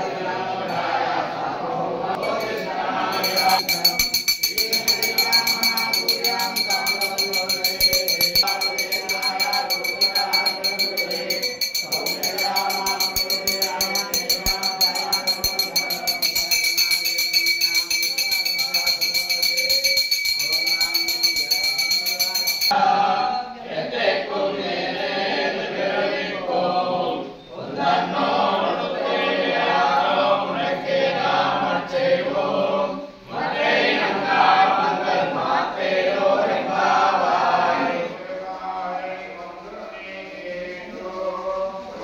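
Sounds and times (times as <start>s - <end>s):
group chanting together: 0.0s - 42.0s
bell ringing: 2.2s - 23.6s.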